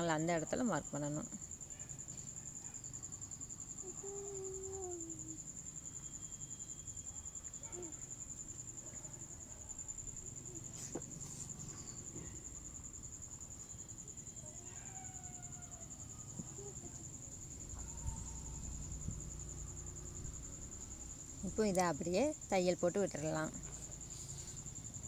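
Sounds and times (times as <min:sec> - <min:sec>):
insect trilling: 0:00.0 - 0:25.0
cloth and chalk rustling: 0:10.6 - 0:12.2, 0:23.3 - 0:24.8.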